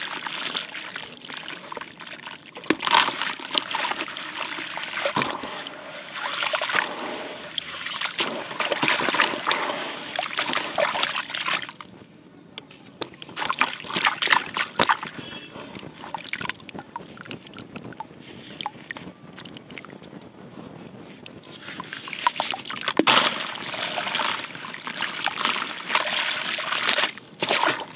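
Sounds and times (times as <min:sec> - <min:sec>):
water sloshing and splashing: 0:00.0 - 0:11.9, 0:12.6 - 0:20.3, 0:21.1 - 0:27.9
water dripping: 0:16.0 - 0:20.3.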